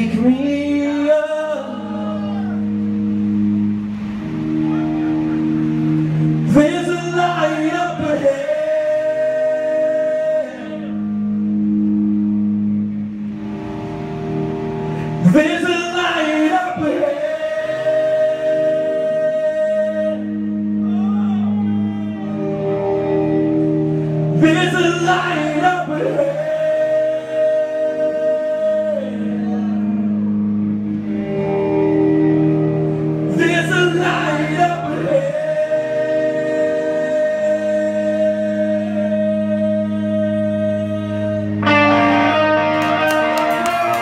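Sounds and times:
man singing: 0.0 - 2.7, 6.4 - 11.2, 15.2 - 22.7, 24.3 - 30.3, 33.3 - 42.6
rock band playing: 2.6 - 6.6, 11.0 - 15.4, 30.0 - 34.5, 41.5 - 44.0.

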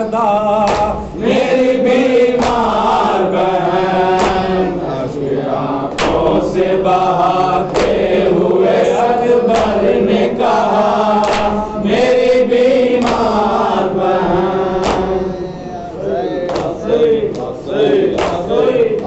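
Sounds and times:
men chanting a lament: 0.0 - 19.0
hands slapping chests: 0.6 - 1.4, 2.4 - 3.1, 4.1 - 4.6, 5.9 - 6.4, 7.3 - 8.2, 9.5 - 10.0, 11.1 - 11.8, 12.9 - 13.6, 14.8 - 15.2, 16.5 - 19.0.

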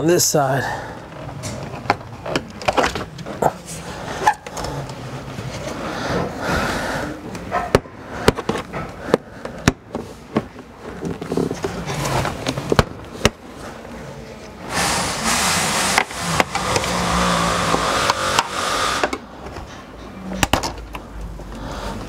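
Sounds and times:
plastic scraping and rustling: 1.1 - 6.3, 7.3 - 18.2.

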